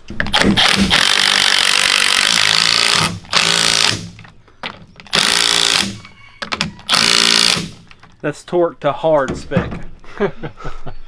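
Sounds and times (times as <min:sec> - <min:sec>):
impact wrench hammering: 0:00.2 - 0:07.9.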